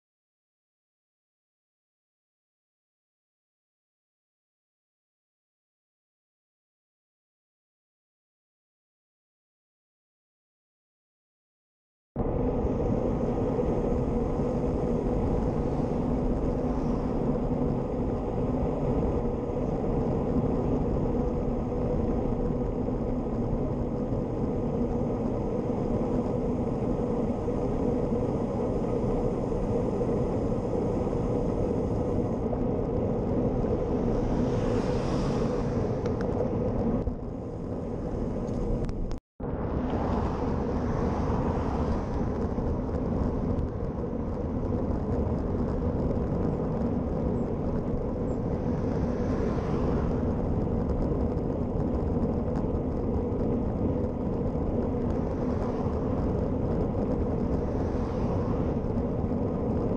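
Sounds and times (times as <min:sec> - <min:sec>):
car passing: 0:12.2 - 0:59.9
tyre road noise: 0:12.2 - 0:59.9
wind buffeting microphone: 0:12.2 - 0:59.9.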